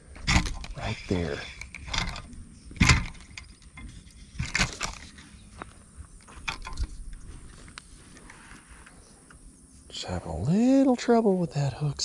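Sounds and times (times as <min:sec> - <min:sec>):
clicks and rustles: 0:00.1 - 0:09.4.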